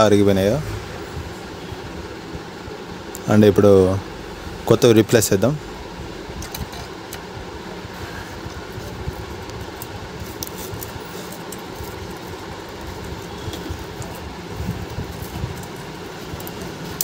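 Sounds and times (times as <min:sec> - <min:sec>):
low background rumble: 0:00.4 - 0:17.0.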